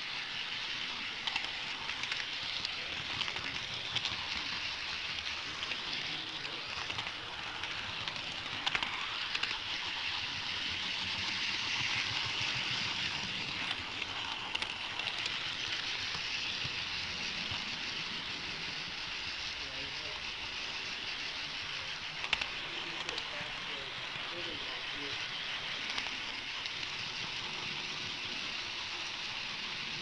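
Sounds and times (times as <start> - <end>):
model train wheels and motor rumble: 0.0 - 30.0
sharp clicks: 22.2 - 23.3.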